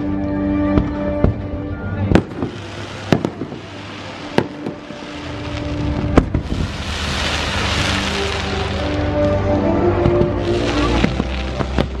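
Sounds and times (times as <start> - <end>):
firework pops: 2.1 - 4.9, 10.0 - 12.0
aerial firework bangs: 2.2 - 3.7
firework hiss: 2.2 - 9.4, 10.2 - 12.0.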